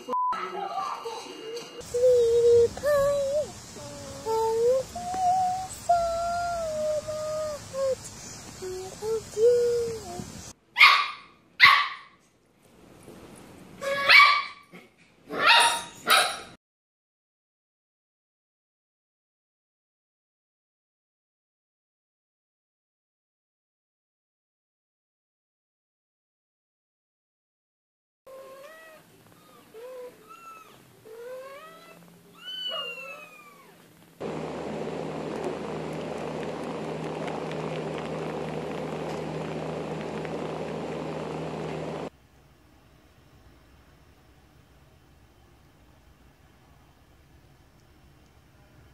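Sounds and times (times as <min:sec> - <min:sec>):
low hum: 0:01.2 - 0:10.5, 0:34.2 - 0:48.9
steady hiss: 0:01.8 - 0:10.6, 0:34.2 - 0:48.8
puppy barking in high yips: 0:10.8 - 0:12.2, 0:13.8 - 0:16.6.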